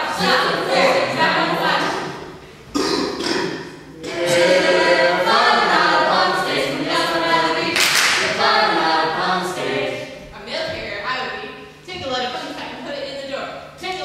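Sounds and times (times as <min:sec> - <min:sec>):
group singing unaccompanied: 0:00.0 - 0:02.4, 0:03.2 - 0:10.4.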